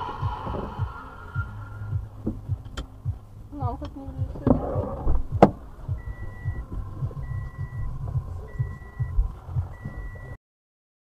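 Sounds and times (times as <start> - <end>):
low rumbling thumps: 0.0 - 10.4
electronic warning beeps: 5.9 - 10.4.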